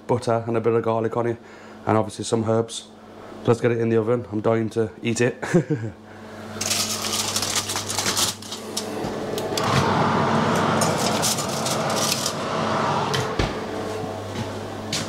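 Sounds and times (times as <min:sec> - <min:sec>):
aluminium foil crinkling: 0:06.6 - 0:08.9
loud steady noise: 0:08.7 - 0:15.0.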